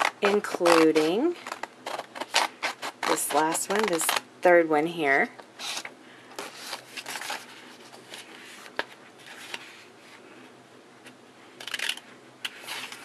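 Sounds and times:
scissors snipping paper: 0.0s - 4.2s
paper rustling: 5.6s - 9.9s, 11.7s - 13.0s.

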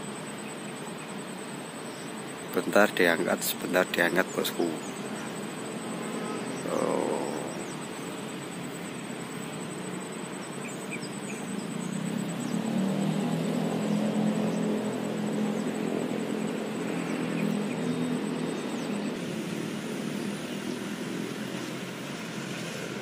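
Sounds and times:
faint high chirps: 0.2s - 12.7s
vehicle engine passing: 12.0s - 21.2s.

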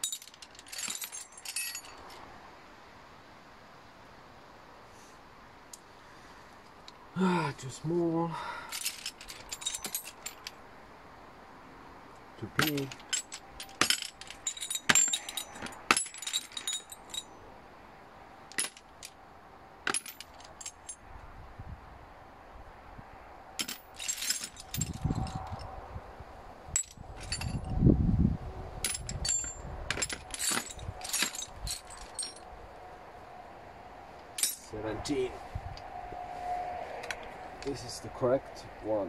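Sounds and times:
steel sockets clinking: 0.0s - 2.2s, 8.8s - 10.6s, 12.4s - 17.4s, 18.5s - 19.2s, 28.8s - 32.4s, 34.2s - 34.7s
low rumbles: 23.8s - 33.2s.

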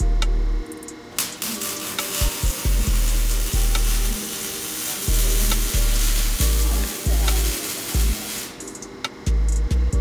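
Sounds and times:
arc welder crackling: 0.7s - 9.7s.

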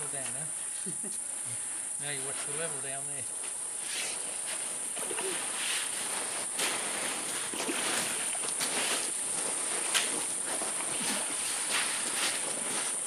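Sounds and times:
high insect drone: 0.0s - 13.0s
shovel scraping wet sand: 3.8s - 13.0s
water splashing: 4.9s - 13.0s.

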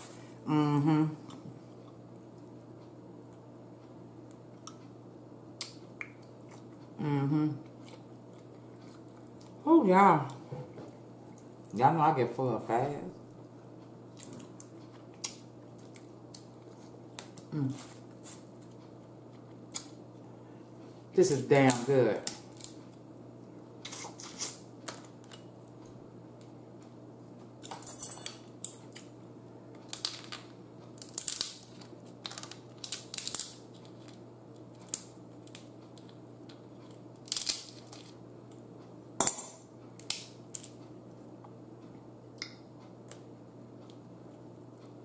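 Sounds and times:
faint low hum: 0.0s - 45.0s
crab shell cracking: 29.8s - 38.2s, 40.0s - 40.8s.

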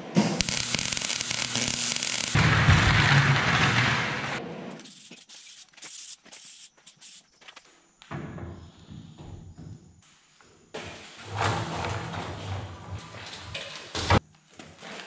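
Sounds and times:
loud steady hiss: 0.2s - 2.7s
welder crackling: 0.2s - 5.6s.

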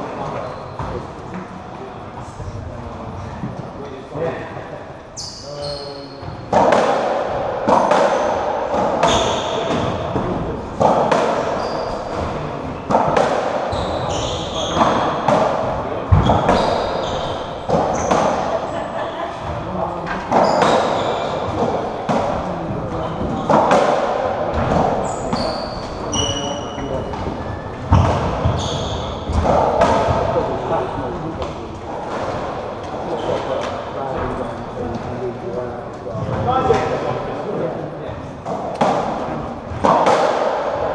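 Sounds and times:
ball struck by rackets echoing: 6.4s - 18.7s, 20.2s - 30.6s, 38.5s - 40.9s
shoes squeaking on wooden floor: 11.4s - 12.6s, 13.7s - 15.2s, 16.1s - 18.7s, 20.1s - 21.8s, 24.6s - 29.9s.

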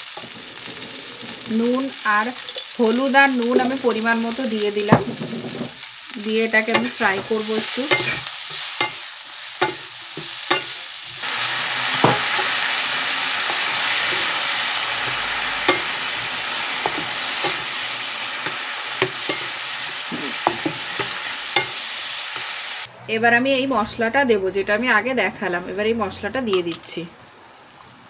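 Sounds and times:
vegetables sizzling in frying pan: 0.0s - 22.9s, 26.5s - 28.0s
spatula knocking against pan: 18.5s - 21.8s.

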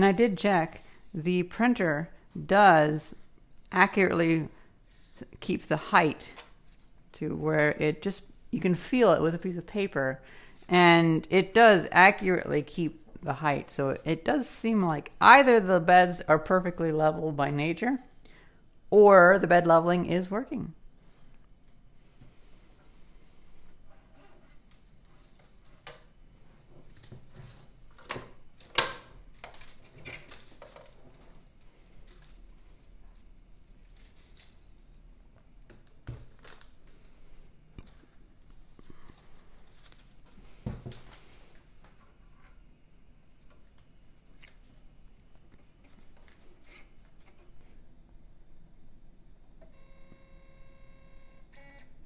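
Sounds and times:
plastic filament rustling: 26.7s - 35.0s.

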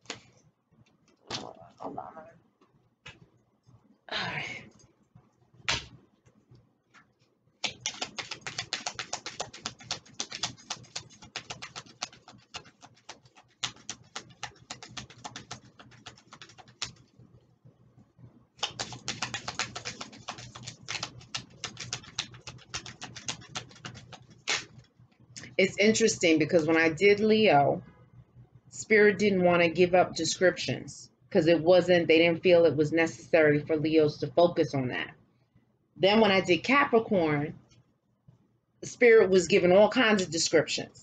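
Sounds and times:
cards being shuffled: 7.6s - 17.1s, 18.6s - 24.8s.

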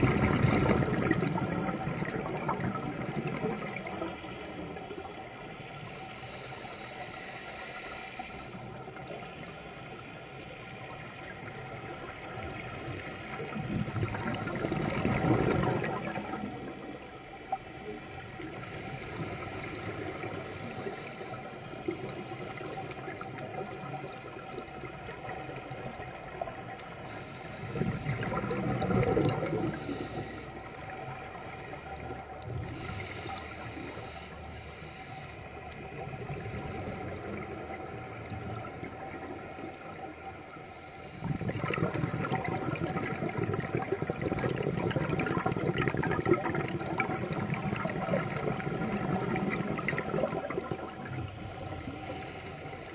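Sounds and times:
underwater regulator bubbles: 0.0s - 5.3s, 11.4s - 35.1s, 41.0s - 52.9s.

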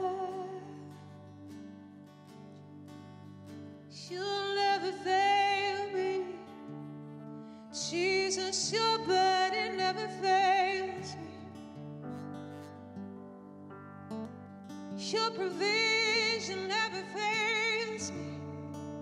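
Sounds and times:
person singing: 0.0s - 1.1s, 4.0s - 6.6s, 7.7s - 11.6s, 15.0s - 18.5s.

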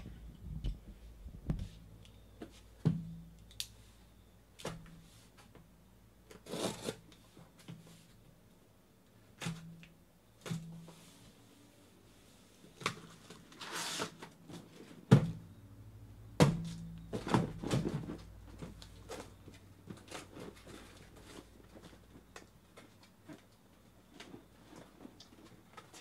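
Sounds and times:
blade scraping through packing tape: 6.4s - 7.0s, 13.5s - 14.2s
cardboard flaps knocking and rustling: 16.4s - 22.0s.

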